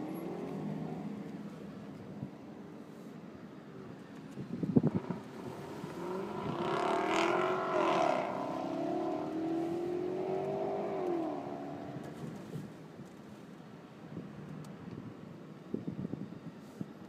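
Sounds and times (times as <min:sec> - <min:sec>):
car engine accelerating: 0:04.8 - 0:12.6.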